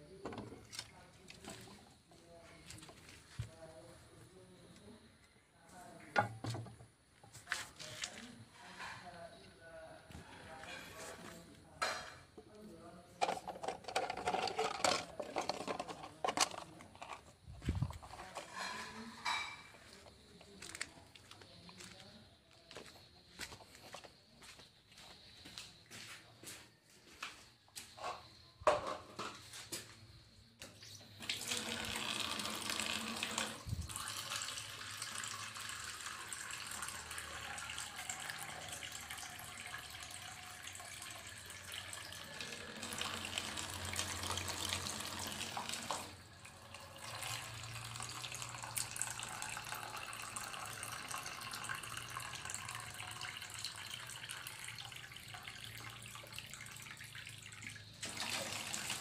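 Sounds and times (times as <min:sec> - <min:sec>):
tap water running into plastic: 0:31.2 - 0:59.0.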